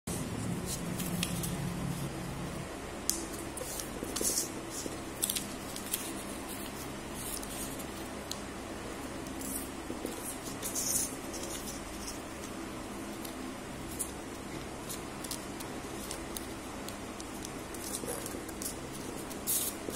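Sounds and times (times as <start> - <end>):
paper folding and rustling: 3.6 - 8.1.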